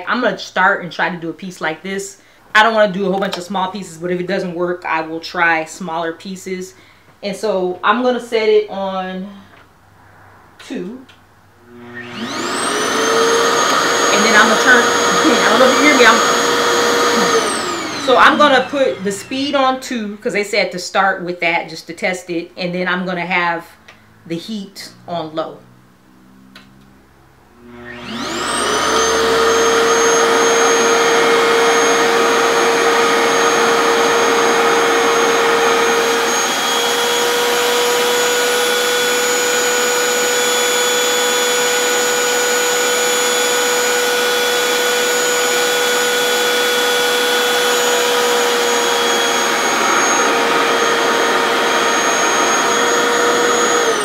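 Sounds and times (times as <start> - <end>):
hair dryer motor whining: 11.6 - 19.8, 27.6 - 54.0.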